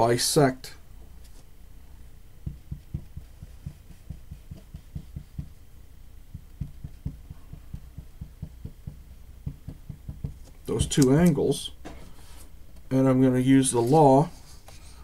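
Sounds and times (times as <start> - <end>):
faint low hum: 0.0 - 15.0
pencil drawing on paper: 2.4 - 5.5.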